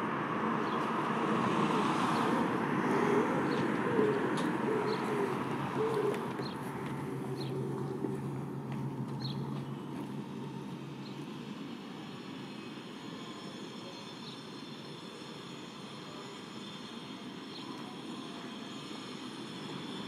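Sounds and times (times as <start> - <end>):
passing vehicle rumble: 0.0 - 11.1
steady traffic background: 0.0 - 20.0.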